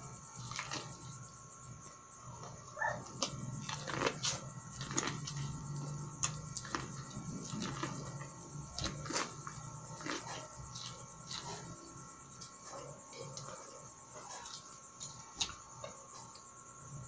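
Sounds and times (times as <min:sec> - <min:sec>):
chewing corn on the cob: 0:00.4 - 0:01.3, 0:02.3 - 0:16.4
dog making noise: 0:02.7 - 0:03.2.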